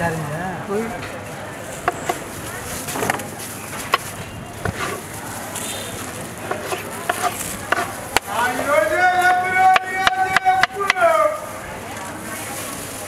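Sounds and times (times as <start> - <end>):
street background noise: 0.0 - 13.0
knife slicing watermelon: 4.6 - 5.0, 6.5 - 8.3.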